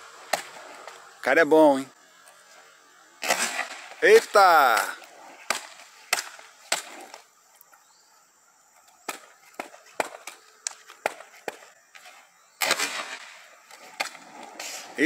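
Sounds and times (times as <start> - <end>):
skateboard clacking on hard court: 9.1 - 11.7.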